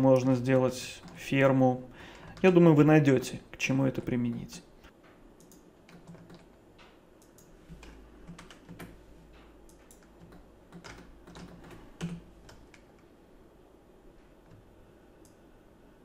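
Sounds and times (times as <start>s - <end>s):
keyboard and mouse clicks: 5.4s - 13.1s.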